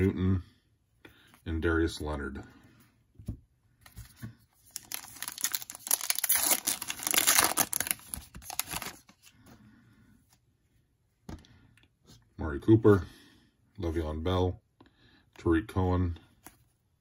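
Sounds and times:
foil wrapper tearing and crinkling: 4.7 - 9.1.

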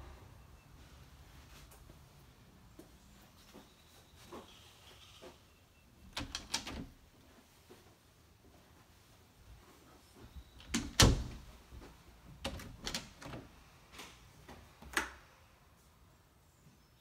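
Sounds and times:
closet doors knocking and clunking: 6.1 - 7.0, 10.5 - 11.6, 12.4 - 13.5.

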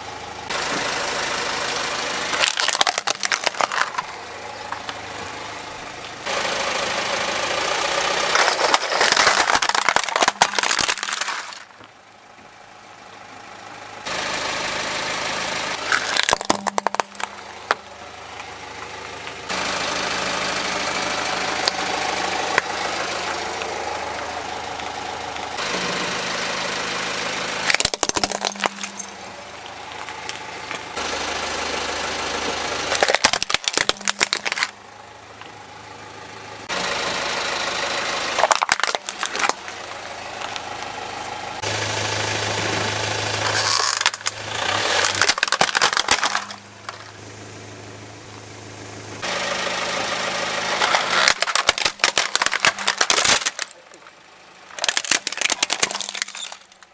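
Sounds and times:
car engine idling: 0.0 - 56.9
plastic toys cracking under tyre: 2.3 - 5.0, 8.2 - 11.9, 15.8 - 17.8, 27.6 - 29.2, 32.9 - 34.8, 38.4 - 39.8, 43.4 - 47.1, 50.8 - 53.9, 54.7 - 56.9.

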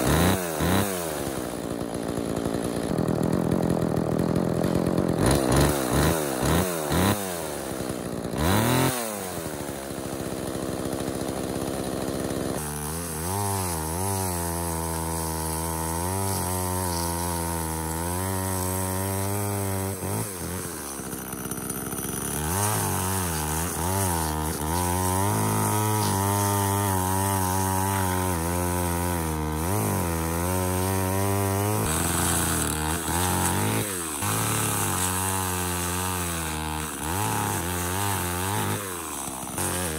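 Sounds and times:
chainsaw cutting log: 0.0 - 39.9
chainsaw revving: 0.0 - 39.9.

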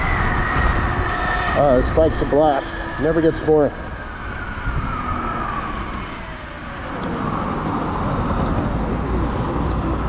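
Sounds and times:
wind and road noise: 0.0 - 10.0.

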